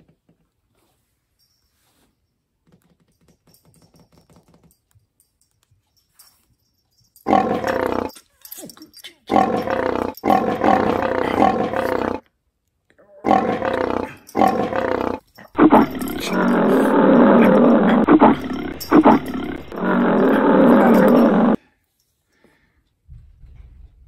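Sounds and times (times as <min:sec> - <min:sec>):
big cat roaring: 0:07.3 - 0:08.1, 0:09.3 - 0:12.2, 0:13.1 - 0:21.6.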